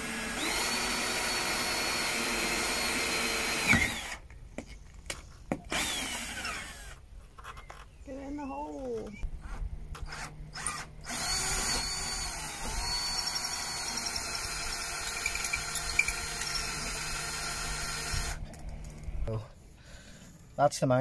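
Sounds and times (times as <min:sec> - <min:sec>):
power drill drilling: 0:00.0 - 0:04.2, 0:05.7 - 0:07.0, 0:10.0 - 0:18.4.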